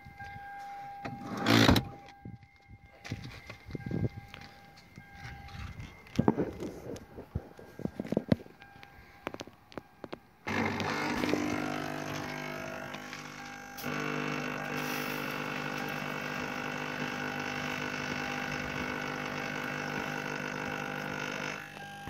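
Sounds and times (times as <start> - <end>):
vacuum cleaner motor whining: 10.5 - 22.0.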